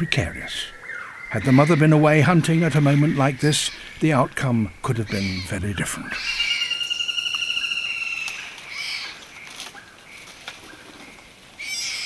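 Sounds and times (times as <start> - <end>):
tiger cub crying: 0.5 - 4.2, 5.0 - 8.0.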